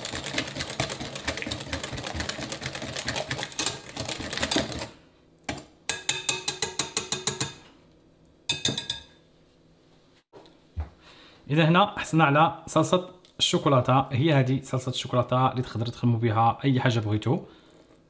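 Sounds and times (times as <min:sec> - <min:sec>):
whisk clattering against bowl: 0:00.0 - 0:04.9, 0:05.9 - 0:07.6
whisk clicking strokes: 0:00.0 - 0:05.0.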